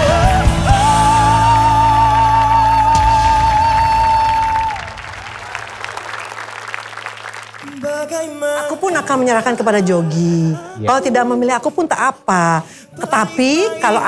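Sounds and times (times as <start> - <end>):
audience applause: 2.2 - 9.2.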